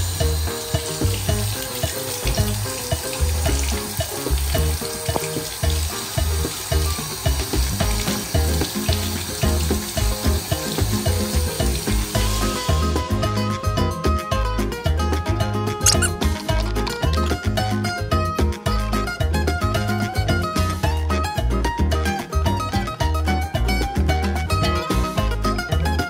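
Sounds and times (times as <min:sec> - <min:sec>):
tap water running into sink: 0:00.0 - 0:12.8
background music with beat: 0:00.0 - 0:26.0.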